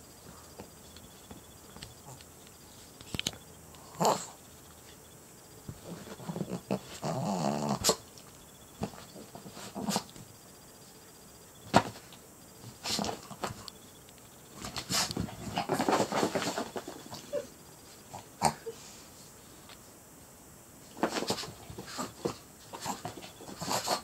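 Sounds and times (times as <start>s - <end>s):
small dog growling: 3.8s - 4.4s, 5.8s - 8.0s, 18.1s - 18.8s, 21.8s - 24.0s.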